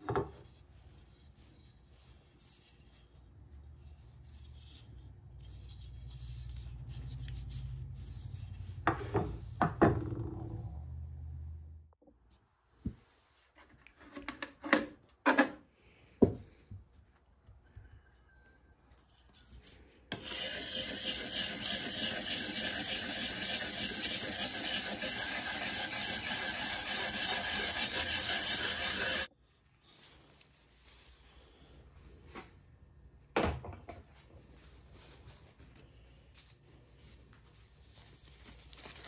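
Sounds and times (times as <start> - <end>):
sharpening stone scraping steel blade: 19.6 - 29.3.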